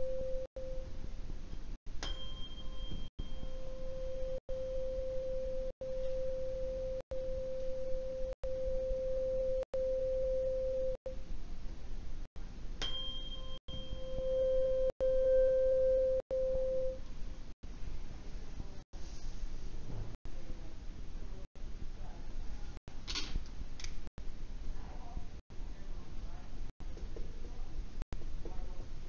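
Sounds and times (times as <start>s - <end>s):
tuning fork ringing: 0.0s - 1.0s, 2.0s - 11.0s, 12.8s - 17.0s
mallet striking tuning fork: 2.0s - 4.4s, 12.8s - 17.0s.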